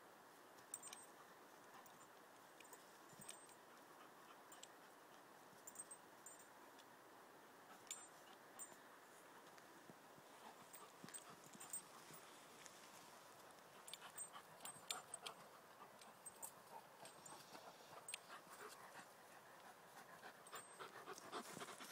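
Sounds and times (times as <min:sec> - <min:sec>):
puppies panting: 0:10.3 - 0:12.3, 0:13.4 - 0:21.9.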